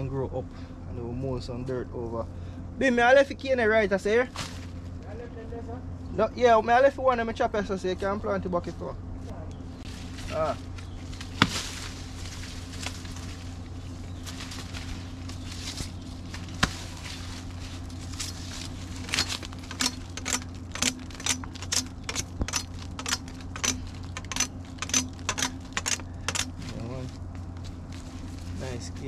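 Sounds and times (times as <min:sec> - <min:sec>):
machete chopping sugarcane: 0:11.2 - 0:13.1, 0:15.7 - 0:17.4, 0:19.0 - 0:26.6.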